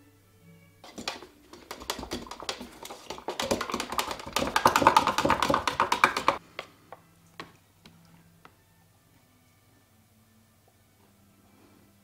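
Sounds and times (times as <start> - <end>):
stirrer scraping metal paint tin: 0.8 - 6.4
taps on paint tin: 0.8 - 6.7.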